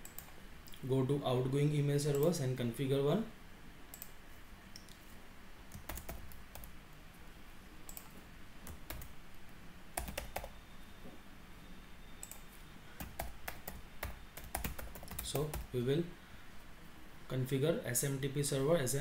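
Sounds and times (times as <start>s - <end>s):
computer keyboard typing: 5.7s - 6.7s, 7.9s - 9.2s, 10.0s - 10.6s, 12.2s - 12.4s, 13.0s - 15.8s.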